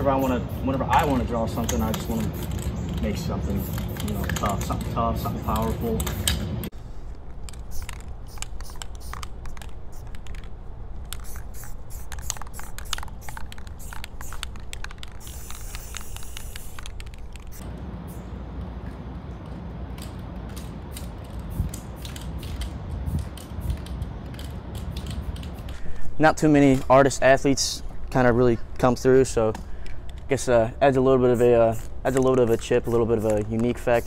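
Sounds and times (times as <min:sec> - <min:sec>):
spray paint can hissing: 0:00.0 - 0:18.3, 0:20.0 - 0:25.8, 0:31.0 - 0:34.0.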